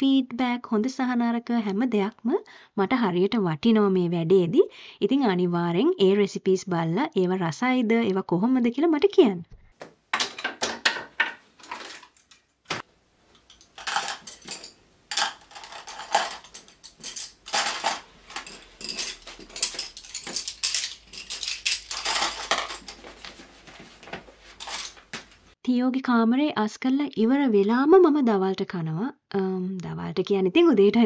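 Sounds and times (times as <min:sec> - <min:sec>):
small hard objects clattering: 0:10.1 - 0:12.4, 0:13.3 - 0:25.5.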